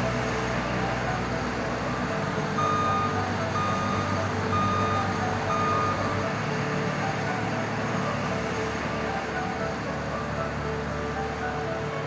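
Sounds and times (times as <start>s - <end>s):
combine harvesters running: 0.0s - 12.0s
electronic warning beeper: 2.6s - 6.2s.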